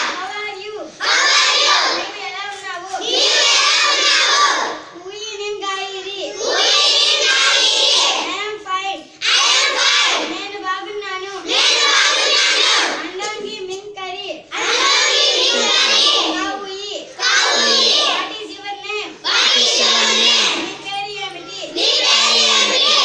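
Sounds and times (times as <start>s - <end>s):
children chanting in unison: 0.0s - 5.0s, 5.9s - 8.3s, 9.0s - 10.4s, 11.2s - 13.2s, 14.4s - 23.0s.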